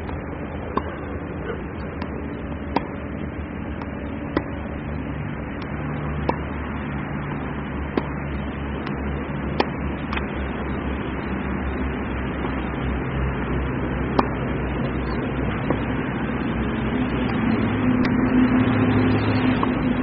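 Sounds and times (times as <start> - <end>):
steady low rumble: 0.0 - 20.0
tennis ball struck with racket: 0.7 - 1.1, 2.0 - 3.0, 3.8 - 4.7, 5.6 - 6.5, 7.9 - 8.2, 8.8 - 10.3, 14.1 - 14.4, 15.7 - 15.9.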